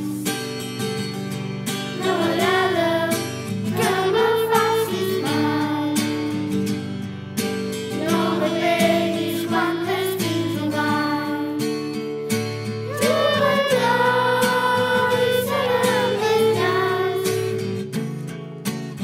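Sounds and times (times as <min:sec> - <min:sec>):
children singing: 0:02.0 - 0:06.2, 0:08.0 - 0:11.6, 0:12.9 - 0:17.9
instrumental backing music: 0:11.6 - 0:19.0.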